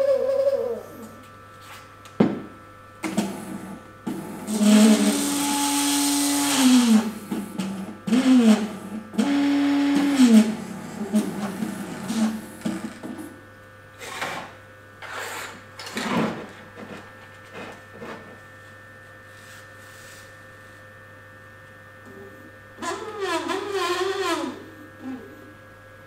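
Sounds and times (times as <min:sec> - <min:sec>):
electrical hum and whine: 0:00.0 - 0:26.0.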